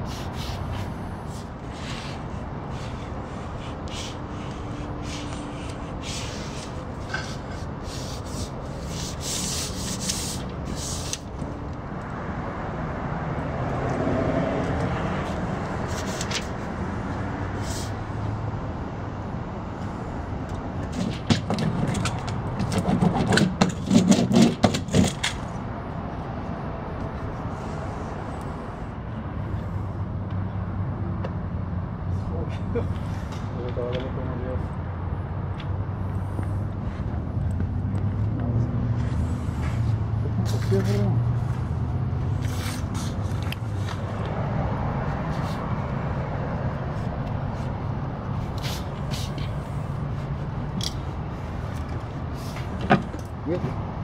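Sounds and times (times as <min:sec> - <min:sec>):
papery rubbing and scraping: 0:00.0 - 0:11.3, 0:15.2 - 0:16.7, 0:42.4 - 0:44.0, 0:48.4 - 0:50.3.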